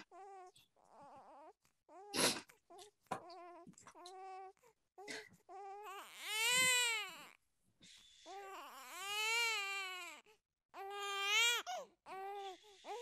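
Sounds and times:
newborn baby crying: 0.0 - 7.4, 8.2 - 13.0.

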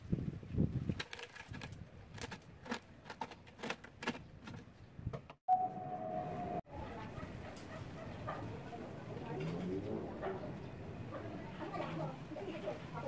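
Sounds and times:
steady high tone: 5.5 - 6.7.

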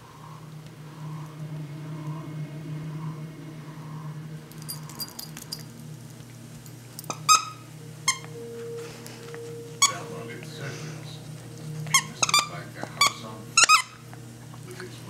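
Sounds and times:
dog collar tags jingling: 4.6 - 5.8.

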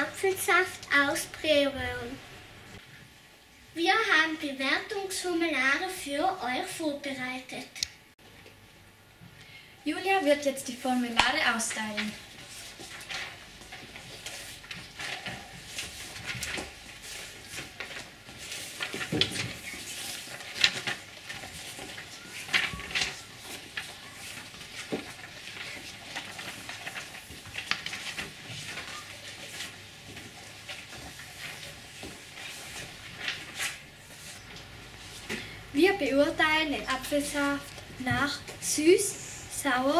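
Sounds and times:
paper rustling and crinkling: 10.8 - 38.6.

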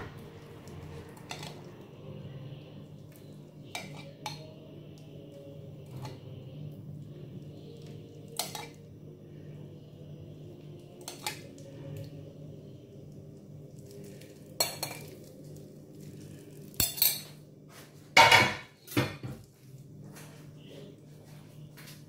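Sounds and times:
steady low hum: 0.0 - 22.0
spoon and bowl clinking on pan: 3.6 - 4.5, 8.3 - 8.8, 11.0 - 11.4, 14.6 - 15.2, 16.8 - 17.4.

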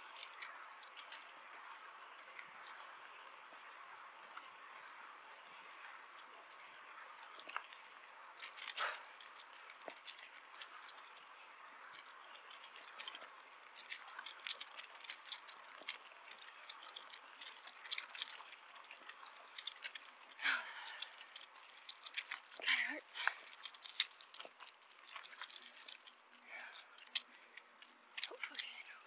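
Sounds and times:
bicycle clicking and rattling: 0.0 - 29.0
steady hiss: 0.0 - 29.0.

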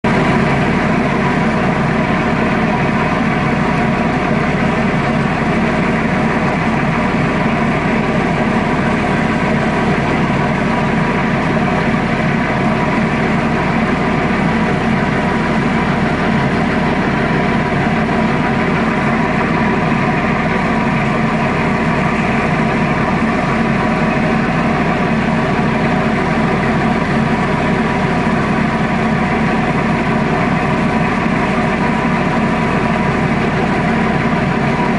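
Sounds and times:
diesel engine drone: 0.0 - 34.9.

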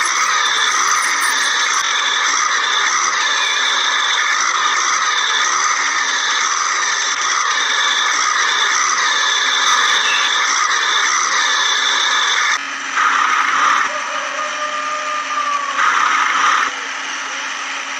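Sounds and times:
toy electric motor whirring: 0.0 - 14.2.

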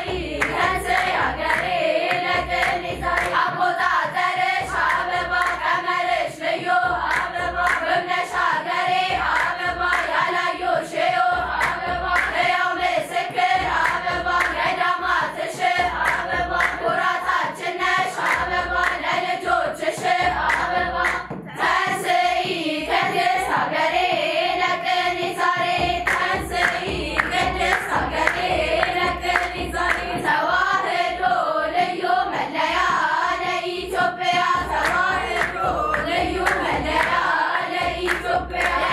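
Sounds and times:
low drum beat: 0.0 - 3.5, 11.3 - 12.4, 13.5 - 14.6, 15.8 - 17.0, 25.8 - 30.3, 34.4 - 38.9
girls' choir singing: 0.0 - 38.9
rhythmic hand clapping: 0.0 - 38.9.

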